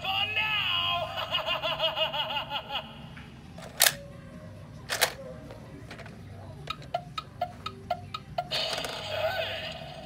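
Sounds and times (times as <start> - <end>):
sharp plastic clacks: 4.9 - 5.2.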